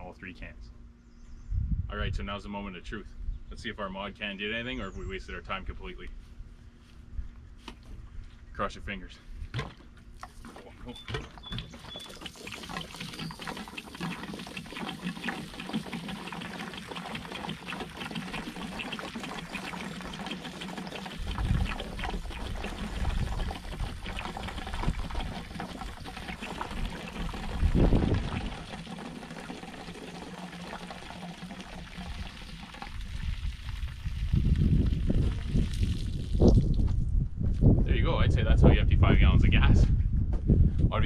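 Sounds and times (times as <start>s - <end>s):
water pouring onto grass: 10.2s - 36.8s.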